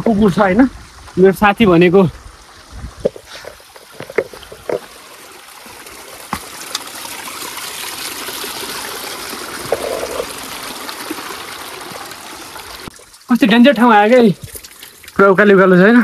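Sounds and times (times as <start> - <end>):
stream trickling among boulders: 0.0 - 16.0
footsteps on loose stones: 3.0 - 4.9.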